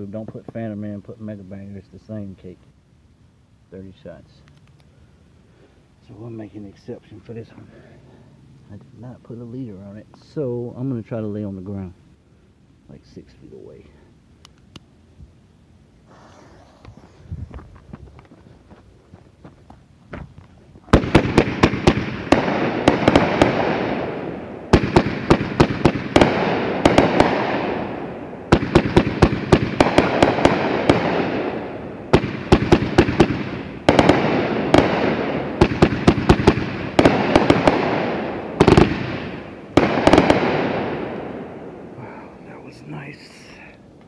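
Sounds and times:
hissing crackling tails: 0:15.8 - 0:18.8, 0:19.4 - 0:44.0
fireworks shots firing: 0:20.9 - 0:42.0.

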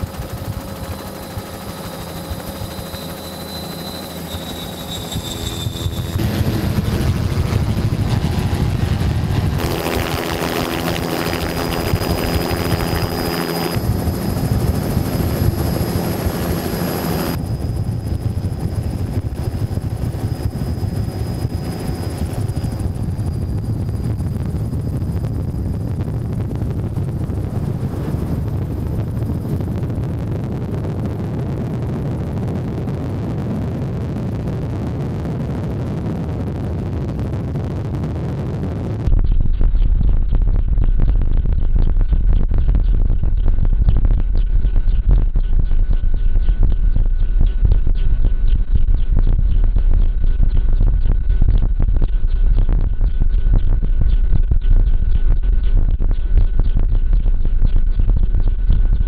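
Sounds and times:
low engine rumble: 0:00.0 - 0:32.5
helicopter rotor: 0:00.0 - 0:59.0
high turbine whine: 0:00.0 - 0:59.0.

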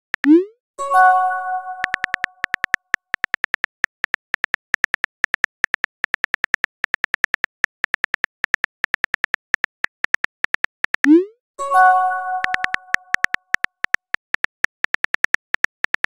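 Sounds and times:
message chime: 0:00.8 - 0:02.4, 0:11.2 - 0:13.3
phone keyboard typing clicks: 0:01.5 - 0:11.2, 0:12.3 - 0:16.0.

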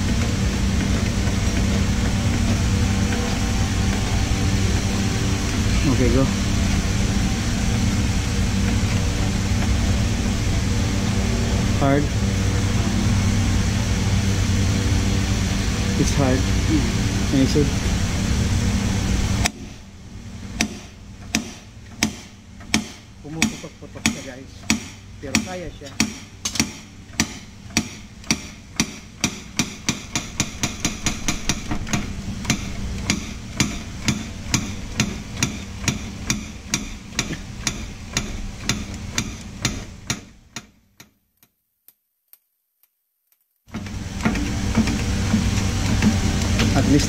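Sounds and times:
steady noise: 0:00.0 - 0:40.6, 0:43.7 - 0:47.0
steel block striking metal shaft: 0:20.6 - 0:40.7.

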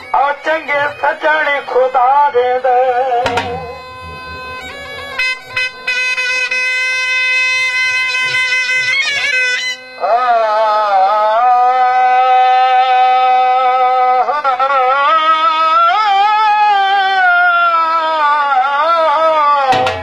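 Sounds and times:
steady drone: 0:03.2 - 0:06.6
dhol strokes: 0:03.2 - 0:06.7, 0:19.7 - 0:20.0
shehnai playing held notes: 0:03.2 - 0:17.1.

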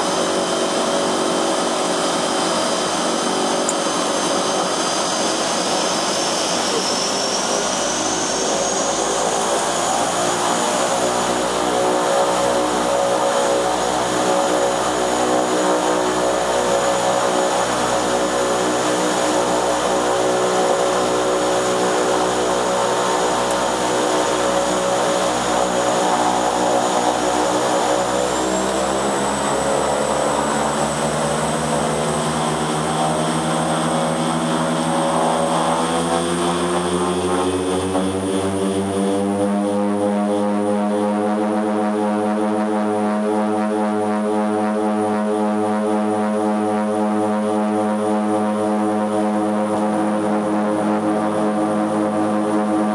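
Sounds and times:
high turbine whine: 0:00.0 - 0:40.9
propeller drone: 0:00.0 - 0:52.9.

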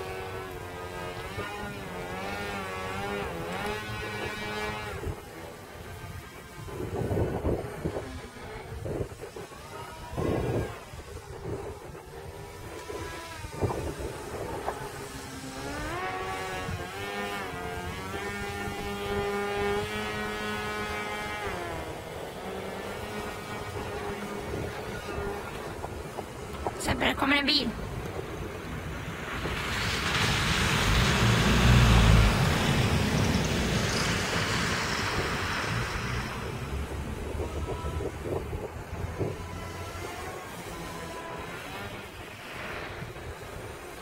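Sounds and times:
model plane propellers whining: 0:00.0 - 0:44.0
wind rumbling on microphone: 0:00.0 - 0:44.0.

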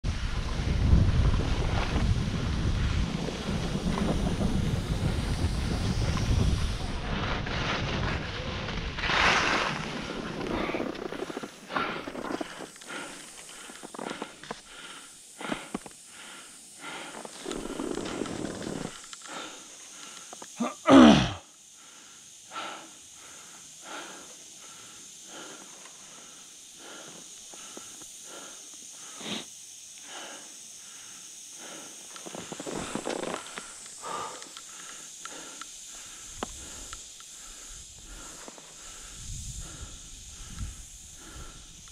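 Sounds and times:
wind on microphone: 0:00.0 - 0:11.1, 0:39.0 - 0:41.9
skis scraping over packed snow: 0:00.1 - 0:15.9, 0:16.9 - 0:19.6, 0:31.7 - 0:35.5.

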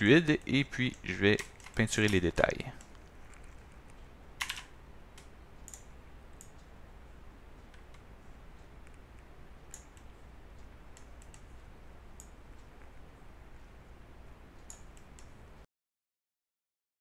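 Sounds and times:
low steady hum: 0:00.0 - 0:15.7
computer mouse clicks: 0:02.8 - 0:06.7, 0:07.6 - 0:13.0, 0:14.6 - 0:15.4.

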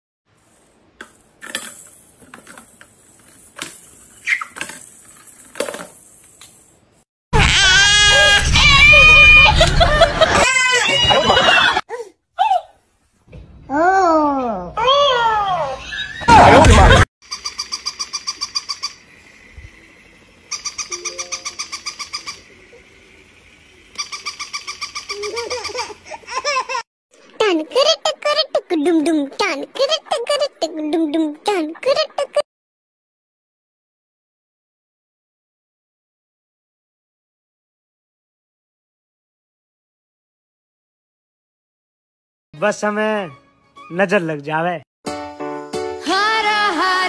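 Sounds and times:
toy rapid electronic chirps: 0:17.2 - 0:19.4, 0:20.5 - 0:22.6, 0:23.9 - 0:25.9.

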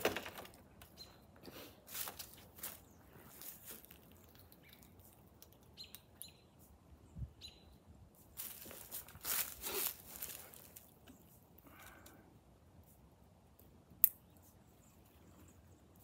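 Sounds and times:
footsteps in dry leaves: 0:01.8 - 0:05.2, 0:08.2 - 0:11.0.

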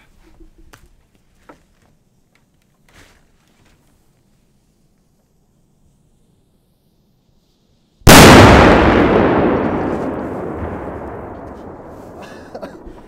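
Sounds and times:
firecracker bang: 0:08.0 - 0:13.0
echoing rumble: 0:08.1 - 0:13.0.

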